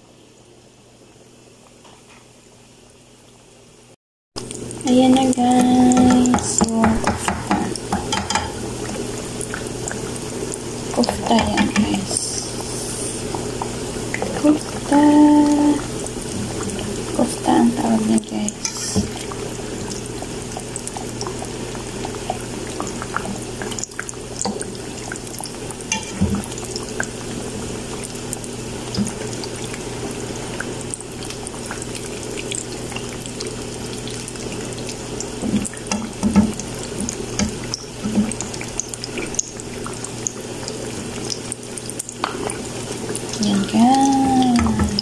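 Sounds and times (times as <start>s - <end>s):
patties deep-frying in hot oil: 0.0s - 45.0s
metal spatula knocking on pan: 6.0s - 8.6s.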